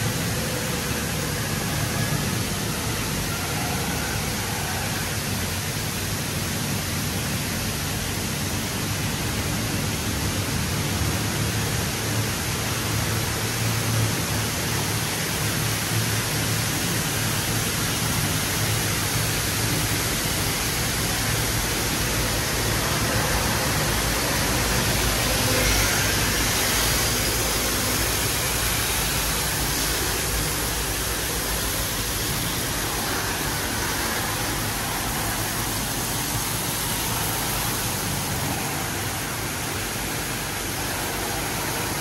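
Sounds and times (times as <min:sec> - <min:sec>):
car wash spraying water: 0:00.0 - 0:42.0.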